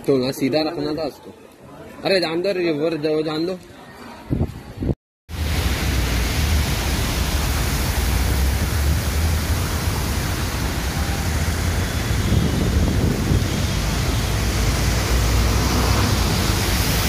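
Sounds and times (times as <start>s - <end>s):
wind buffeting microphone: 4.3s - 17.0s
heavy rain rushing: 5.3s - 17.0s.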